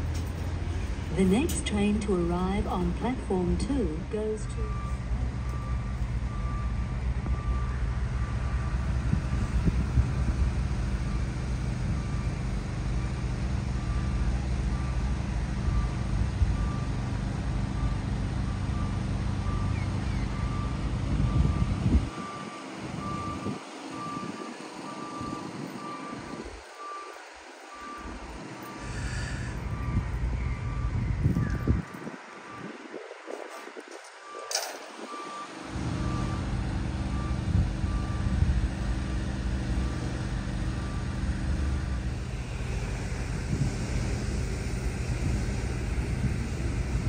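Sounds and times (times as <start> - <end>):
low engine rumble: 0.0 - 47.0
reversing alarm beeping: 1.1 - 10.2, 11.0 - 32.8, 34.2 - 42.2.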